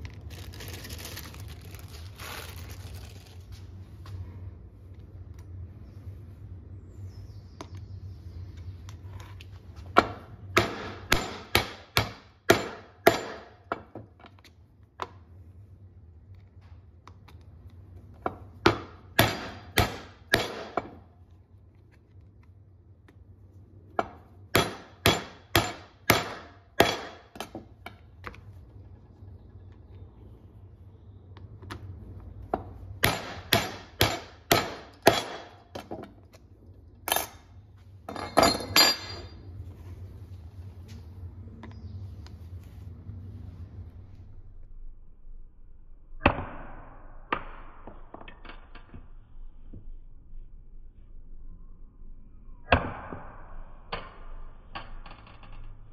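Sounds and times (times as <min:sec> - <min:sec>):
maul striking metal tool: 0:24.6 - 0:27.2, 0:33.0 - 0:35.6.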